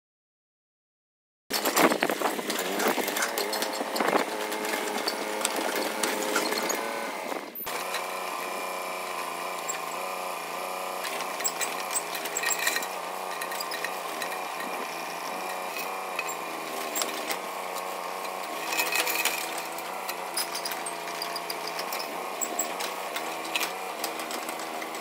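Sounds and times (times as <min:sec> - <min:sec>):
excavator running under load: 0:01.5 - 0:25.0.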